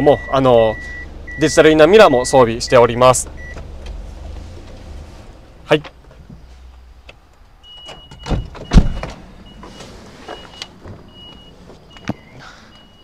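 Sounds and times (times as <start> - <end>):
high warning beeps: 0.0 - 3.6, 7.6 - 13.0.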